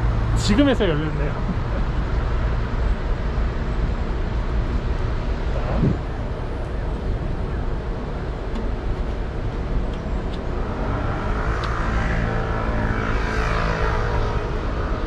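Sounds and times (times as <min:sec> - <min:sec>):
road traffic: 0:00.0 - 0:15.0
vehicle passing: 0:05.4 - 0:06.6, 0:10.6 - 0:15.0.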